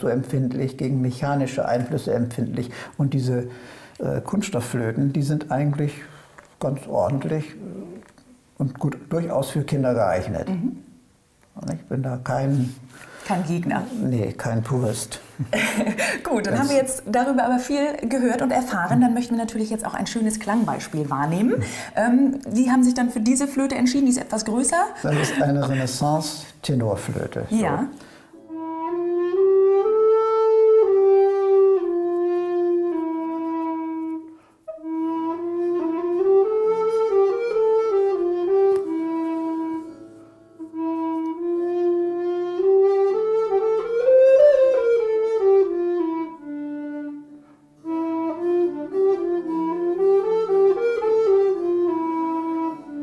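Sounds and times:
recorder melody: 15.6s - 19.4s, 27.6s - 53.0s.

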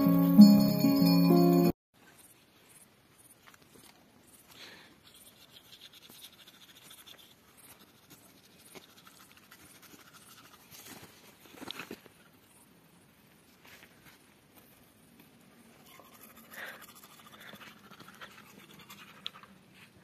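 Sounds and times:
toothbrush scrubbing teeth: 5.1s - 10.9s, 15.8s - 19.6s.

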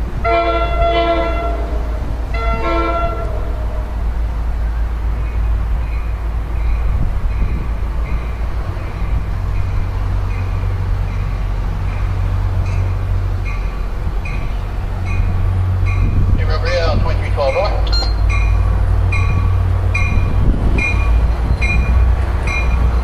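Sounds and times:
train rumbling: 0.0s - 23.0s
warning bell dinging: 17.4s - 18.6s.

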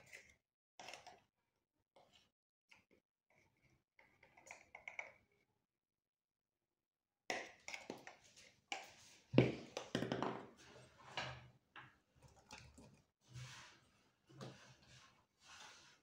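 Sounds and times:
kitchen containers tapping and knocking: 9.4s - 11.9s.

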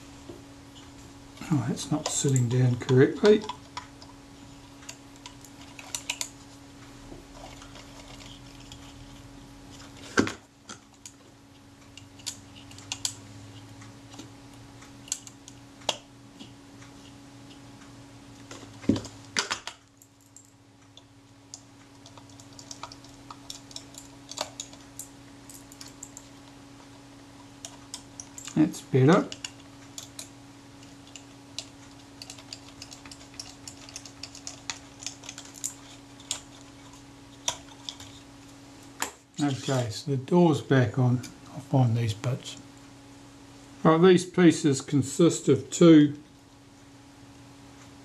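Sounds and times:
screwdriver clicking on metal parts: 4.9s - 6.3s, 21.5s - 26.2s, 29.2s - 38.2s.

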